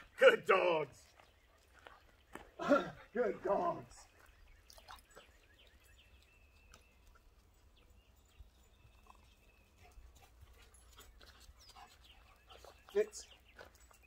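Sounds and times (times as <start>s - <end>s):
footsteps on gravel: 0.5s - 4.4s.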